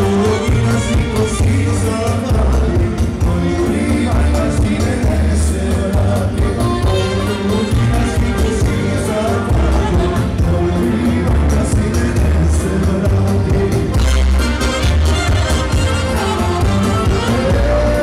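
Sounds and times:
saxophone and trumpet melody: 0.0 - 3.7, 6.3 - 11.0, 13.9 - 18.0
folk dance music: 0.0 - 18.0
man singing into microphone: 0.0 - 18.0.

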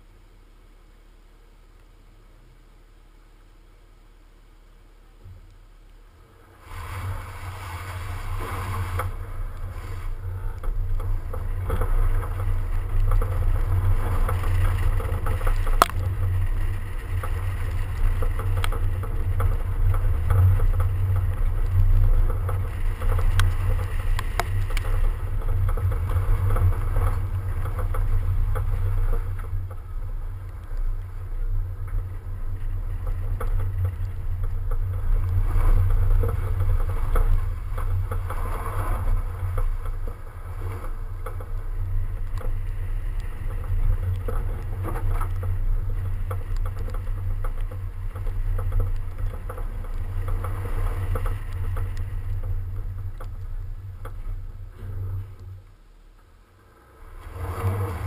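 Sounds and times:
car engine and tyre noise: 0.0 - 58.0.

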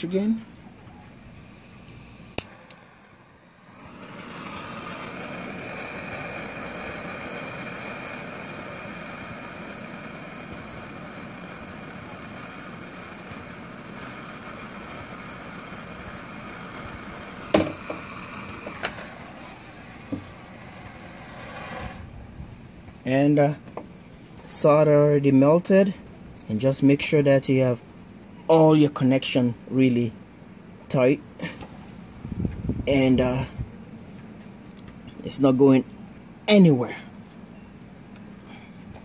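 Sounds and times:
propane torch hissing: 1.1 - 22.4.

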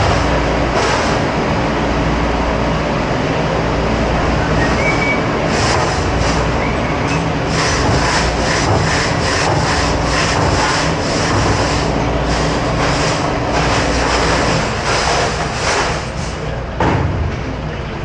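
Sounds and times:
dishwashing machine hum: 0.0 - 18.0
rhythmic hissing spray pulses: 7.5 - 16.3.

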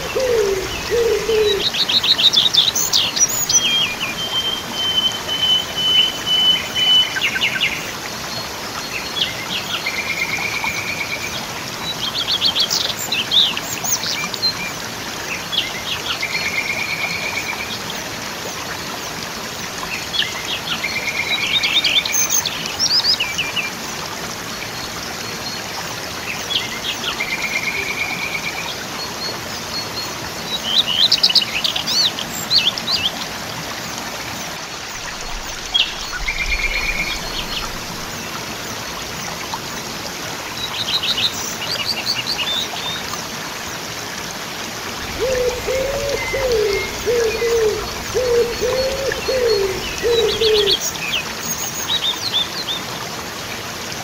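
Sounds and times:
songbird singing: 0.0 - 7.9, 35.0 - 38.3, 45.0 - 51.2
waterfall rushing: 0.0 - 54.0.

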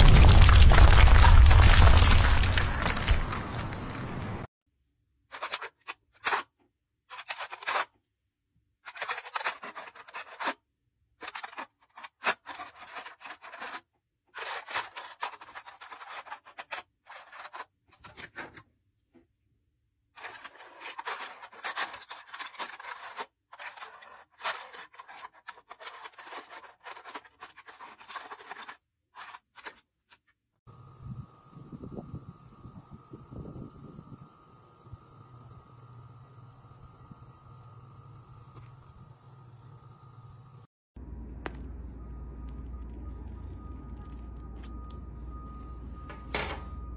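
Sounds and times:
foil lid crinkling and scratching: 0.0 - 3.9, 5.3 - 6.5, 7.1 - 7.9, 8.9 - 10.6, 11.2 - 18.2, 20.2 - 30.3, 42.5 - 44.9.

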